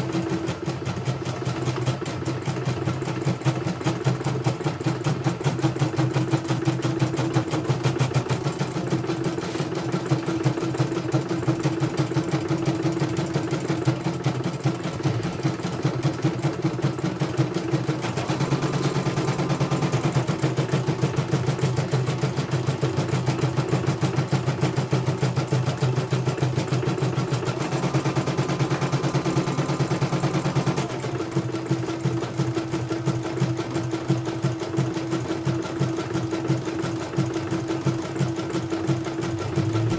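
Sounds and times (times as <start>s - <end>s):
embroidery machine needle stitching: 0.0s - 39.9s
motor hum: 38.3s - 39.9s.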